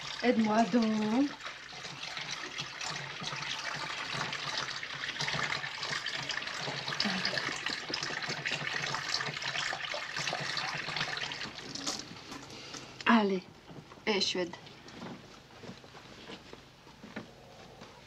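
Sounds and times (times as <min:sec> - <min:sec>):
tap water running into sink: 0:00.0 - 0:12.5.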